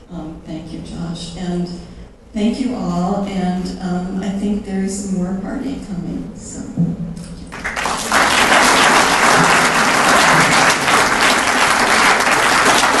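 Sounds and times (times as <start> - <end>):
audience applauding: 7.5 - 13.0.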